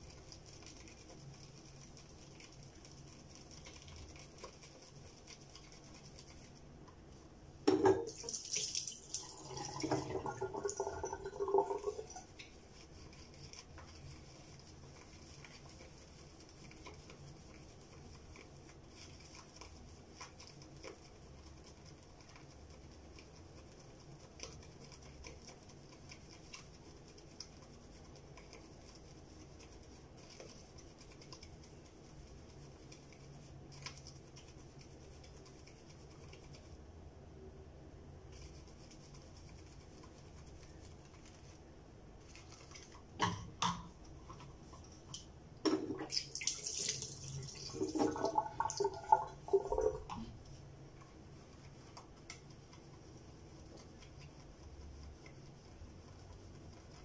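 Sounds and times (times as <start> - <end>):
water splashing and running: 7.7 - 16.2, 44.3 - 50.4.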